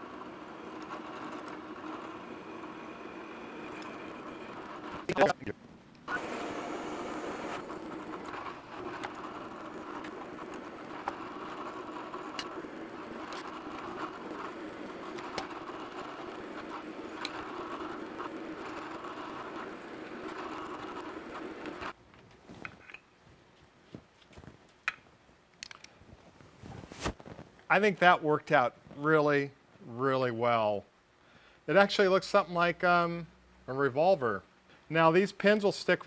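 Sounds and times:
milling machine drilling metal: 0.0 - 5.2, 6.1 - 21.9
small clicks: 7.5 - 21.9, 24.9 - 26.0.

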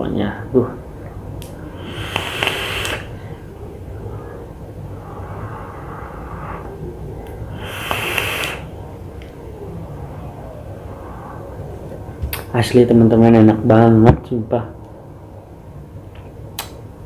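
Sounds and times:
airy hiss of vape draw: 1.8 - 3.2, 7.5 - 8.7.

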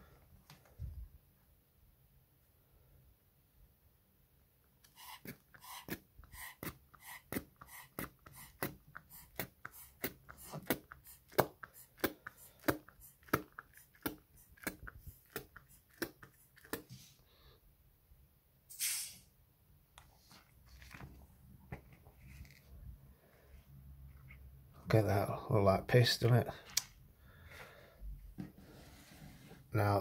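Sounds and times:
rubber pump bulb squeezing: 4.8 - 16.9.

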